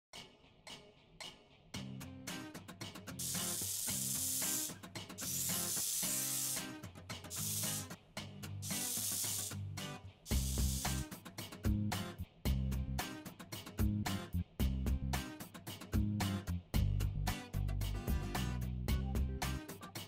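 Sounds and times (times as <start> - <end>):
swells of hissing noise: 3.2 - 4.7, 5.3 - 6.7, 7.4 - 7.9, 8.7 - 9.6, 10.3 - 11.0
music with bass and steady beat: 9.5 - 20.0.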